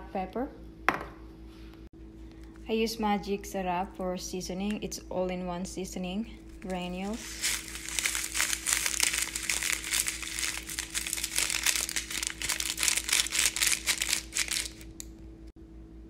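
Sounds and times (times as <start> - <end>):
seasoning sachet crinkling: 6.4 - 15.1.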